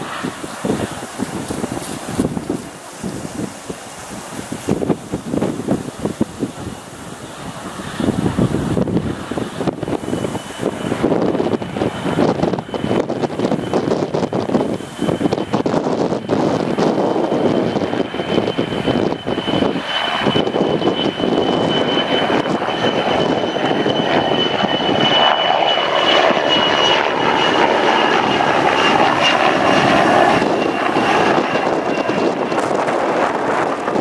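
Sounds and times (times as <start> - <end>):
helicopter flying past: 0.0 - 34.0.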